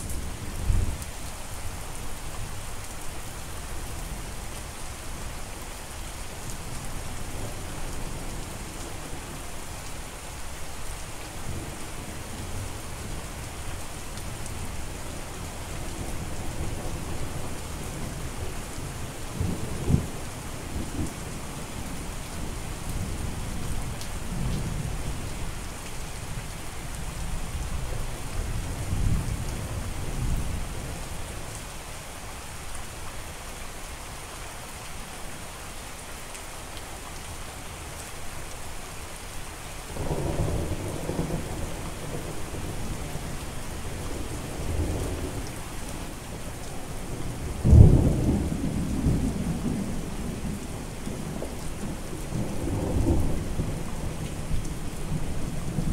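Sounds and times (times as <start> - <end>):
steady rain: 0.0 - 55.9.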